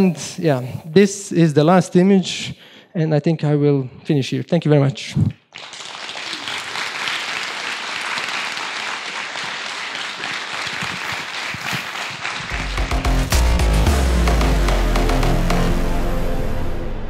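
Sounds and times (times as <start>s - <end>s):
audience applauding: 5.5s - 14.2s
music: 12.5s - 17.0s.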